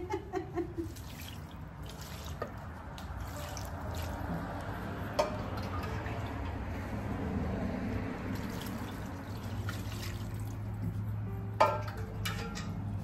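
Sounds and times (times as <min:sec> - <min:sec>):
water pouring onto meat in pot: 0:00.8 - 0:04.6, 0:08.3 - 0:10.7.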